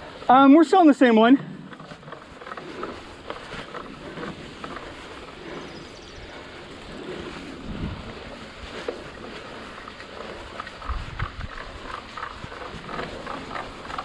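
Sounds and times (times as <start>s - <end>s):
bike rattling: 0.0s - 14.0s
tyre and wind rush: 0.0s - 14.0s.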